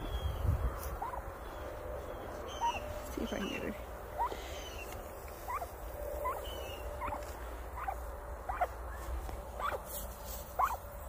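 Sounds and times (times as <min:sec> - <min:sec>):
turkey soft high chirps: 0:02.5 - 0:03.6, 0:04.2 - 0:07.2.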